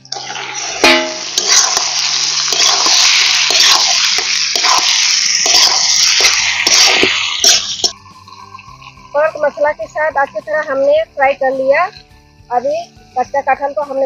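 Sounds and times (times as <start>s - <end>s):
meat sizzling in oil: 0.0s - 12.2s
metal ladle scraping pan: 0.1s - 9.0s.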